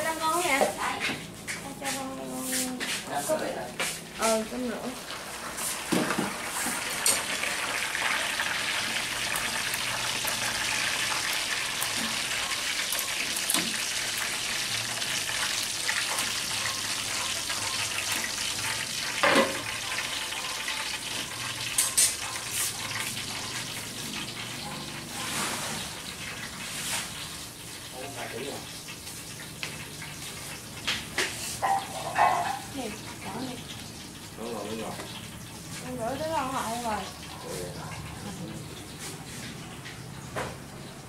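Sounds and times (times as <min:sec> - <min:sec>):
meat sizzling in a frying pan: 0:00.0 - 0:41.0
spatula stirring: 0:15.0 - 0:27.3.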